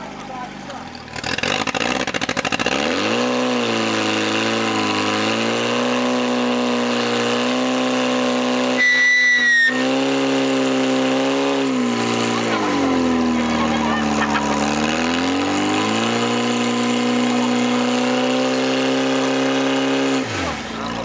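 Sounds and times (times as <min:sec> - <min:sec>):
pump engine revving: 0:00.0 - 0:21.0
high whistle: 0:08.8 - 0:09.8.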